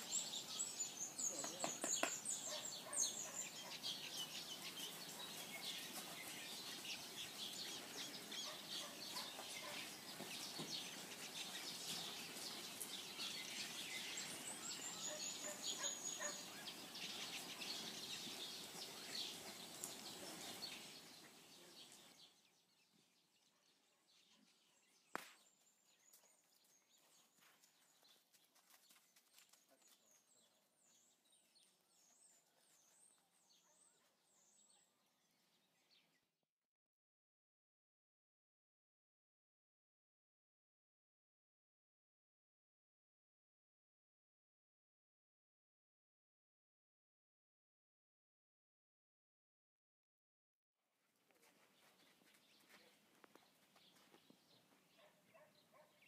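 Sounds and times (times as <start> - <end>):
birds chirping: 0.0 - 36.3, 51.6 - 56.0.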